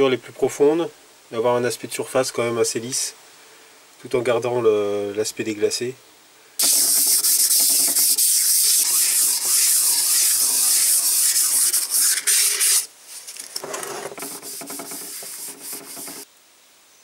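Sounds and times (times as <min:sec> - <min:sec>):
sandpaper rasping on metal: 0:06.6 - 0:12.9, 0:14.1 - 0:16.3.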